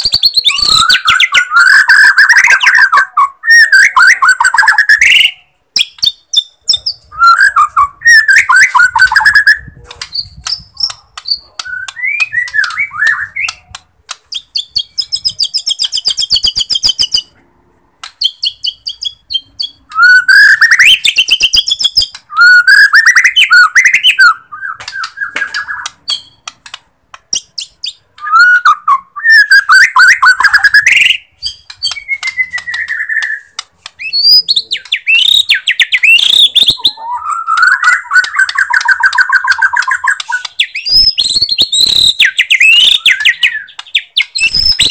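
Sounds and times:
bird singing whistled phrases: 0:00.0 - 0:13.6, 0:18.2 - 0:26.4, 0:27.3 - 0:44.9.

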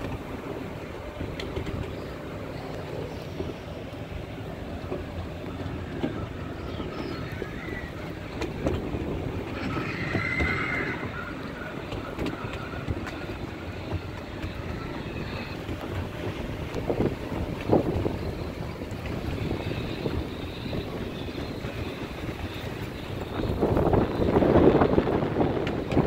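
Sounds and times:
small train rumbling on track: 0:00.0 - 0:26.0
wheels clicking: 0:00.0 - 0:26.0
faint high squeal: 0:09.5 - 0:13.3.

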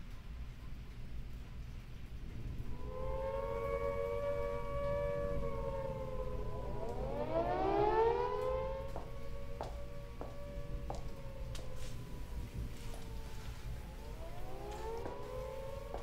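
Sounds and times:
air-raid siren wailing: 0:02.0 - 0:16.0
siren winding up: 0:02.7 - 0:12.2.

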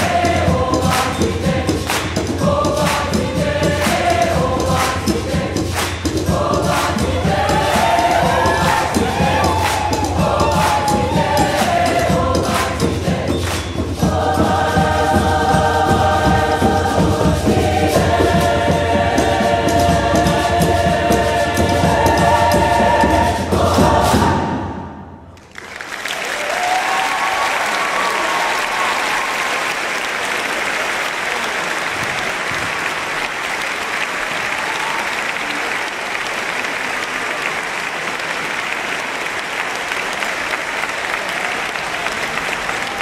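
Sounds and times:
choir singing a chord: 0:06.2 - 0:25.2
audience applause: 0:07.5 - 0:12.8, 0:25.4 - 0:43.0.

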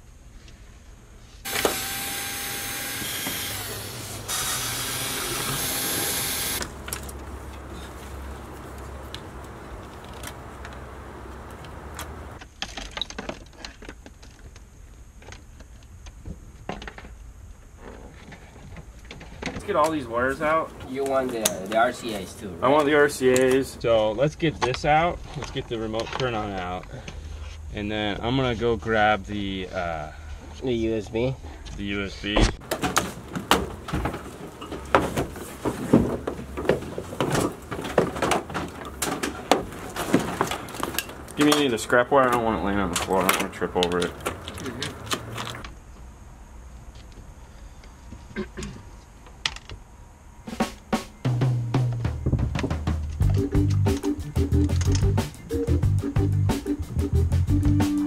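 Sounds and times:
background hiss: 0:14.4 - 0:36.2, 0:41.2 - 0:58.0
plastic connectors clicking and rattling: 0:40.4 - 0:45.6.

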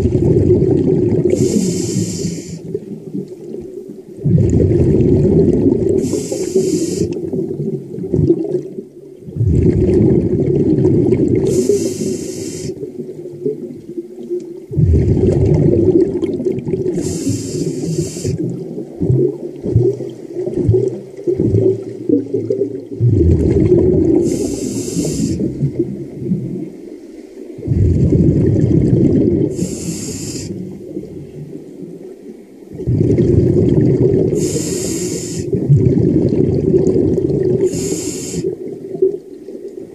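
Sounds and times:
exhaled bubbles burbling: 0:00.0 - 0:26.9, 0:27.5 - 0:39.9
regulator inhale hiss: 0:01.3 - 0:02.7, 0:06.0 - 0:07.2, 0:11.5 - 0:12.8, 0:16.9 - 0:18.4, 0:24.2 - 0:25.5, 0:29.5 - 0:30.8, 0:34.4 - 0:35.6, 0:37.6 - 0:38.6.

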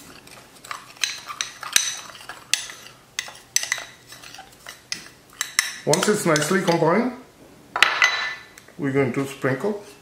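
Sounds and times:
metal spoon clinking on glass bowl: 0:01.0 - 0:06.8.

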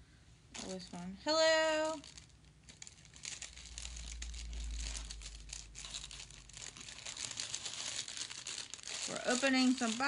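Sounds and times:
plastic bag crinkling: 0:00.5 - 0:10.0
low rumble: 0:02.9 - 0:09.1.

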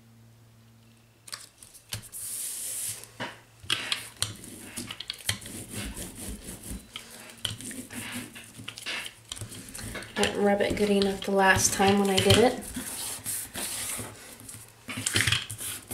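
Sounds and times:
rubber roller scraping over paper: 0:03.7 - 0:15.9.

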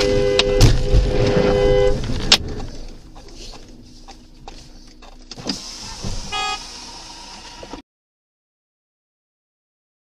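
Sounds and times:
car cabin hum: 0:00.0 - 0:07.8
short pitched beep: 0:06.3 - 0:06.7.

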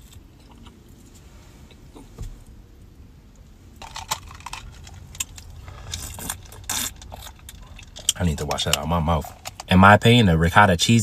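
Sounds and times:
faint chewing: 0:00.0 - 0:02.2, 0:03.8 - 0:09.7
low steady hum: 0:00.0 - 0:11.0
plastic cup with ice rattling: 0:03.8 - 0:09.7.

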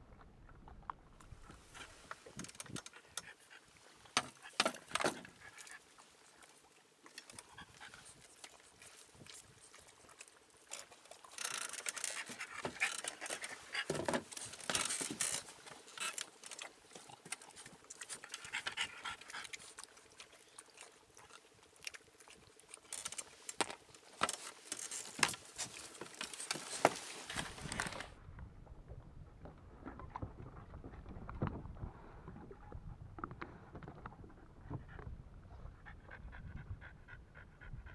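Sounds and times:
dog panting: 0:18.2 - 0:20.0, 0:35.6 - 0:37.9.

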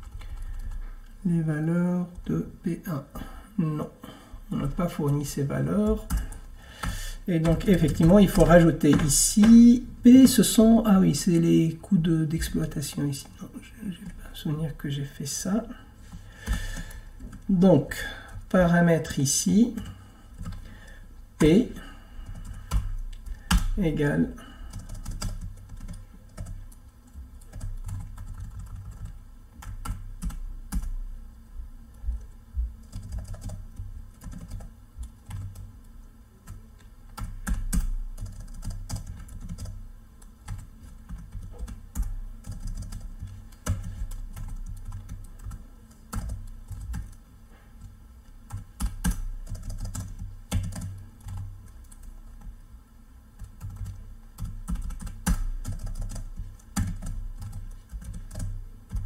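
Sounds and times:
typing on computer keyboard: 0:05.8 - 0:10.6, 0:16.4 - 0:18.5, 0:21.4 - 0:23.8, 0:24.6 - 0:31.0, 0:32.2 - 0:35.7, 0:36.4 - 0:47.2, 0:47.8 - 0:52.5, 0:53.4 - 0:59.0.

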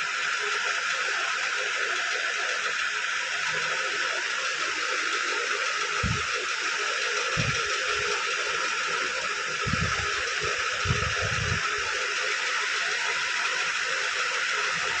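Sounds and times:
steady even hiss: 0:04.7 - 0:15.0
soft low thumps: 0:06.0 - 0:06.3, 0:09.6 - 0:10.1, 0:10.8 - 0:11.6.

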